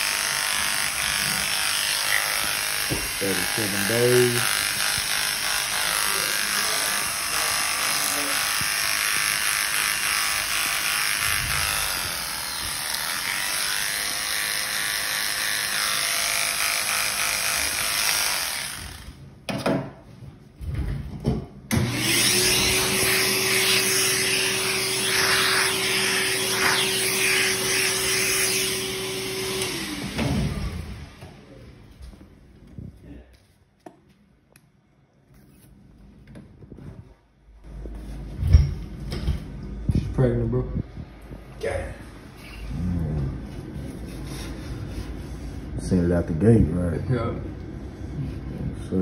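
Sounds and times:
clippers cutting fur: 0.0s - 19.2s, 21.7s - 30.8s
electric hair clippers buzzing: 0.0s - 19.2s, 21.7s - 31.3s
clippers winding down: 21.7s - 31.2s.

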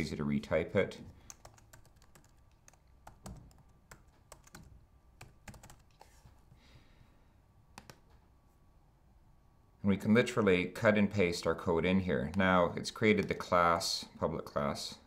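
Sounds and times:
computer keyboard typing: 1.2s - 6.2s, 7.8s - 8.2s.

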